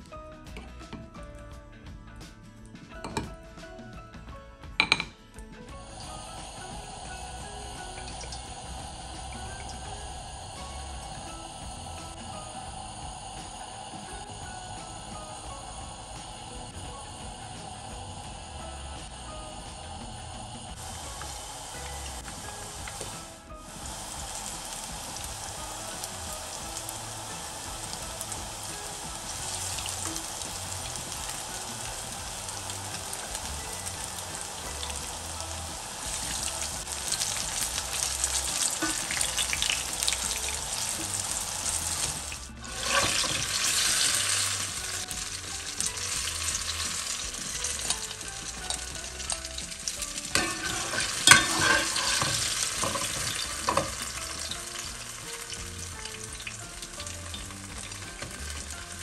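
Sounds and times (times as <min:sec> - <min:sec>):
metal utensil clicking on pan: 0:04.8 - 0:05.2, 0:50.3 - 0:54.6
fritters sizzling in oil: 0:05.7 - 0:59.0
utensil scraping pan: 0:42.0 - 0:45.0, 0:50.3 - 0:54.2.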